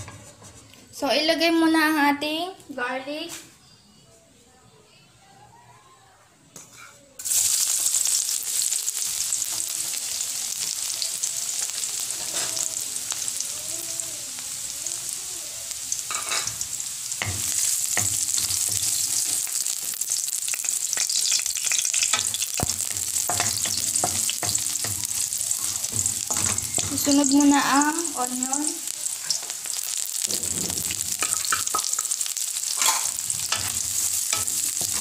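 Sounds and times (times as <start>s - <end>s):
wooden spatula scraping wok: 0.0s - 1.0s, 17.2s - 35.0s
garlic sizzling in hot oil: 7.2s - 35.0s.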